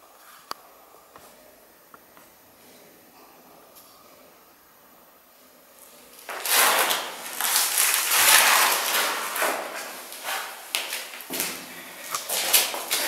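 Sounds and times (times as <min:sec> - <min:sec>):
plastic pipes scraping on concrete: 0:06.3 - 0:11.5.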